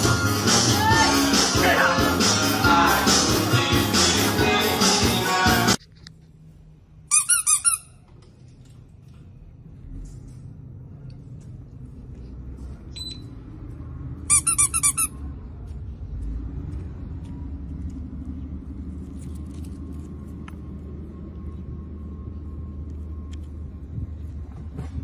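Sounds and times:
squeaky toy squeaking: 7.1 - 8.0, 14.3 - 15.2
low rumble: 15.1 - 25.0.

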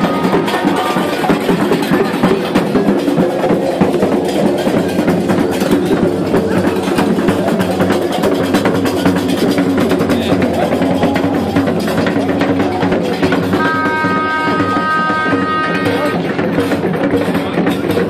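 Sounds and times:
drums beaten in fast rhythm: 0.0 - 18.0
high held tone: 13.5 - 16.3.

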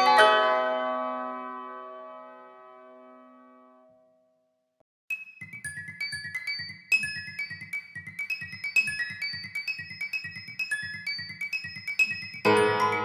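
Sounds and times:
high ringing melody: 5.1 - 13.0.

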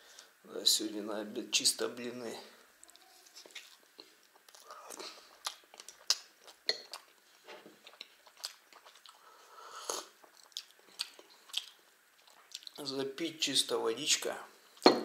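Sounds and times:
chewing and wet mouth sounds: 2.8 - 9.3, 9.9 - 12.8.

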